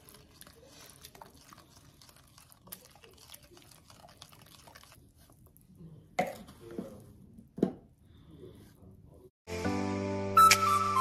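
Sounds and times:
spoon stirring glaze in a bowl: 0:00.0 - 0:05.6.

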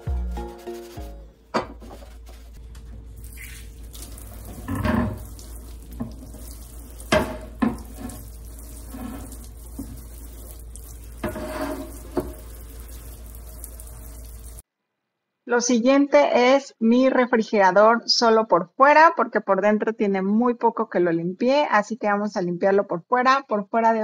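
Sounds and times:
faucet running into sink: 0:03.2 - 0:14.6.

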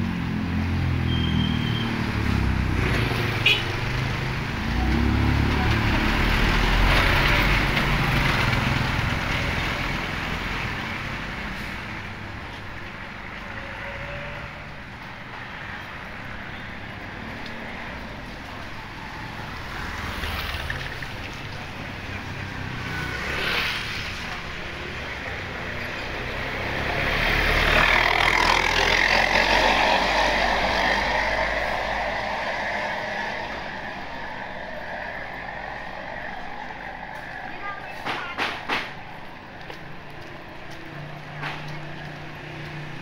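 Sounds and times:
motor vehicle passing: 0:00.0 - 0:12.2, 0:15.5 - 0:43.0
street noise: 0:00.0 - 0:43.0.

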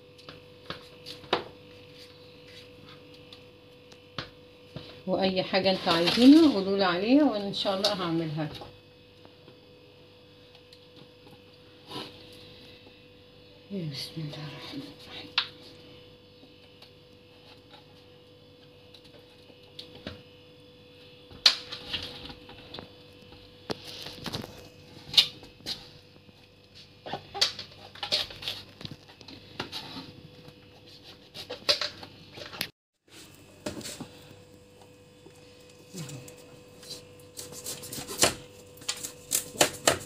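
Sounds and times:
faint steady hum: 0:00.0 - 0:40.0.

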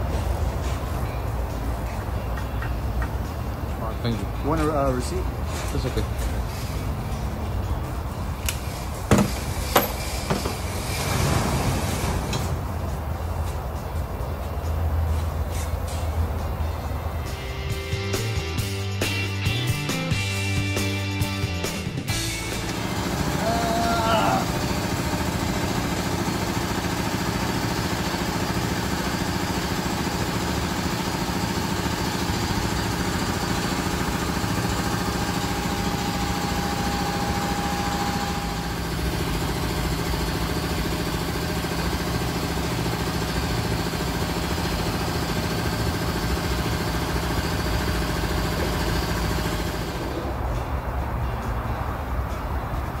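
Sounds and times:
machinery humming: 0:21.3 - 0:50.7.

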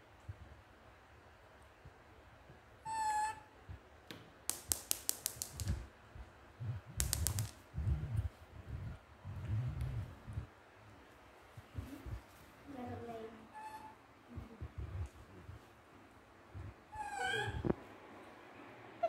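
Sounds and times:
baby monkey high call: 0:02.8 - 0:03.5, 0:13.5 - 0:14.0, 0:16.9 - 0:17.6
sharp clicks: 0:04.5 - 0:05.8, 0:07.0 - 0:07.6.

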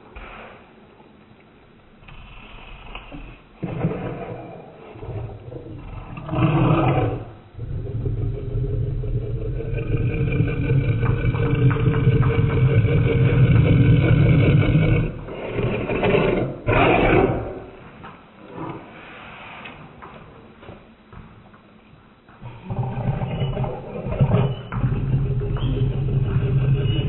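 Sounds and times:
dog growling: 0:02.0 - 0:17.8, 0:22.4 - 0:27.0.

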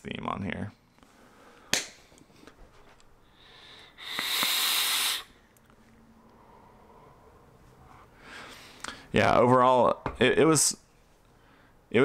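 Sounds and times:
breathy vape hiss: 0:03.2 - 0:05.4.

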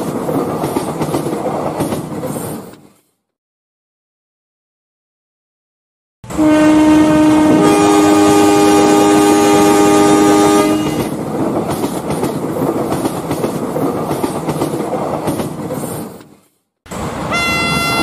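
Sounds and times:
train wheels clacking over rail joints: 0:00.0 - 0:03.0, 0:11.0 - 0:17.1
train horn: 0:06.3 - 0:11.1, 0:17.3 - 0:18.0.

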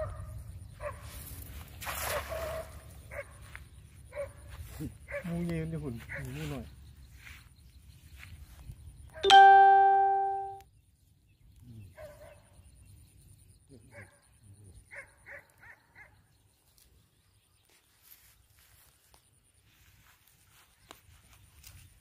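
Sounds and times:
loud chime-like ding: 0:09.2 - 0:10.6.

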